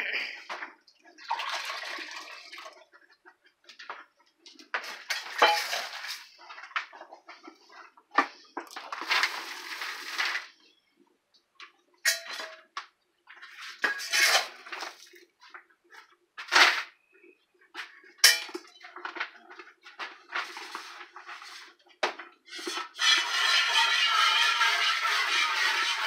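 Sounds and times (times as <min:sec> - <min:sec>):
milk squirting into metal pail: 0:01.2 - 0:02.9
metal pail clanking: 0:05.0 - 0:06.3, 0:12.0 - 0:12.7, 0:13.7 - 0:15.1, 0:18.2 - 0:18.7.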